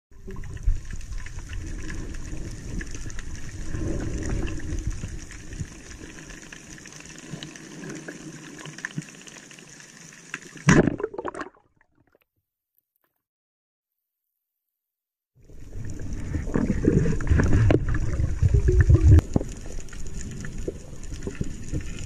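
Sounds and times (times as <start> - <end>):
underwater rumble: 0.1 - 9.9, 15.4 - 22.0.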